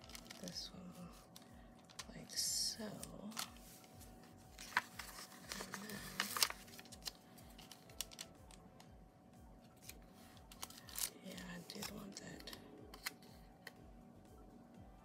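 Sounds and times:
paper stickers rustling: 0.0s - 2.2s, 2.9s - 8.6s, 9.8s - 13.2s
sharp paper crinkles: 0.0s - 2.2s, 3.3s - 3.9s, 4.6s - 8.5s, 9.8s - 13.2s.

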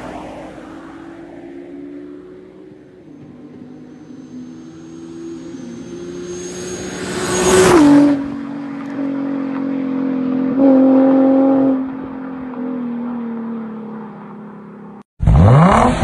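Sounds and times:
car driving past fast: 0.0s - 12.0s.

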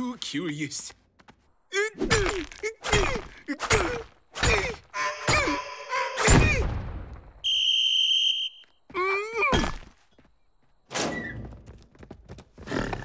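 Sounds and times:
grunts of effort: 1.7s - 5.6s
steady high whistle: 7.4s - 8.7s.

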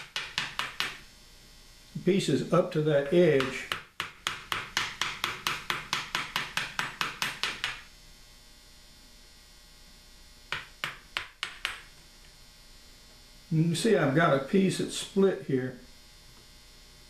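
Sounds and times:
mallet tapping chisel into wood: 0.0s - 1.0s, 3.4s - 7.8s, 10.5s - 11.9s.

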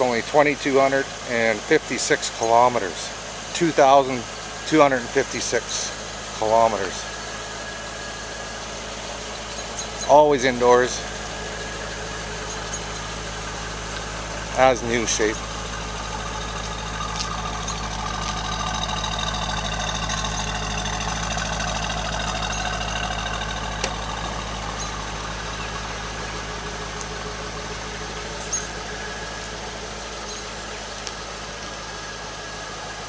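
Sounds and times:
car engine idling: 0.0s - 33.0s.

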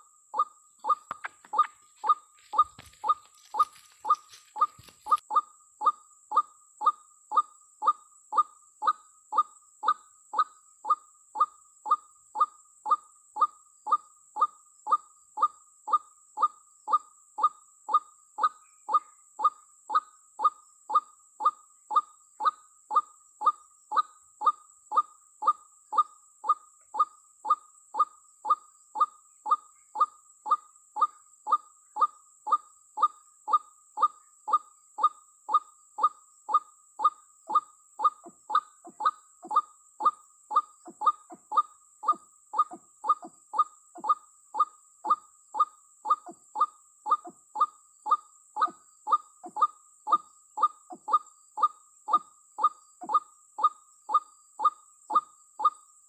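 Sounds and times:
waterhen calling: 0.8s - 5.2s.

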